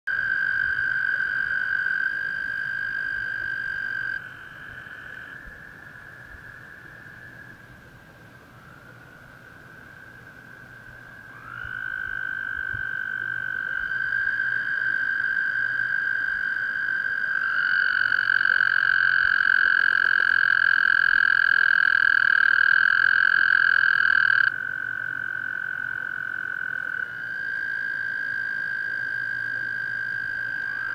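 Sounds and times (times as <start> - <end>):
toads trilling: 9.8 - 30.9.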